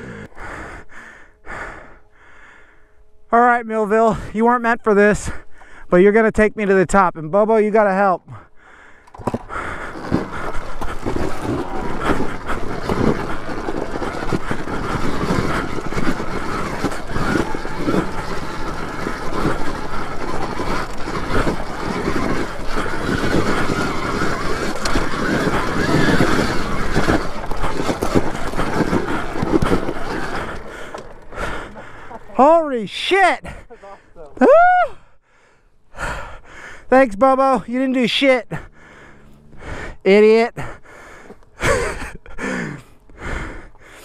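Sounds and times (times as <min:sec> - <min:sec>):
bike rattling over rocks: 0:09.0 - 0:33.9
electric motor under load: 0:09.1 - 0:32.5.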